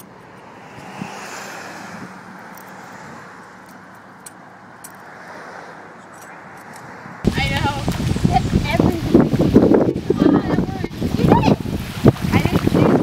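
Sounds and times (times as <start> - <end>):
car hum and hiss: 0.0 - 6.1.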